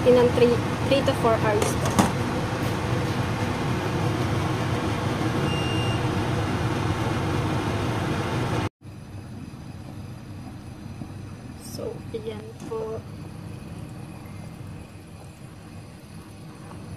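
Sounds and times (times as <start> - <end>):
soup boiling with rushing bubbles: 6.1 - 16.9.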